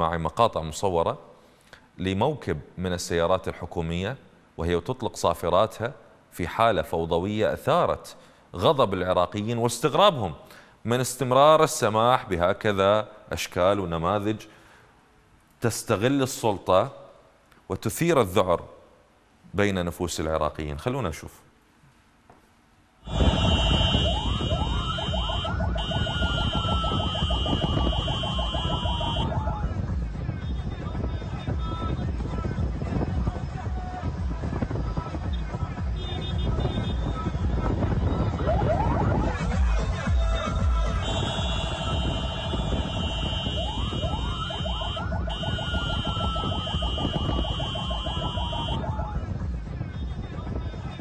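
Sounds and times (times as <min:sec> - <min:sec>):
engine and road rumble: 0:21.6 - 0:51.0
fast warbling siren: 0:23.1 - 0:29.6, 0:38.3 - 0:39.5, 0:43.2 - 0:49.2
steady high siren tone: 0:23.1 - 0:29.6, 0:38.3 - 0:39.4, 0:41.6 - 0:49.2
wailing siren: 0:23.1 - 0:29.6, 0:38.3 - 0:39.6, 0:43.0 - 0:49.2.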